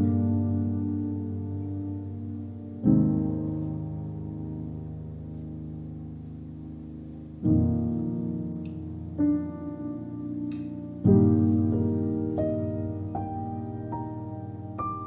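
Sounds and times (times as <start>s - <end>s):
slow solo piano music: 0.0s - 15.0s.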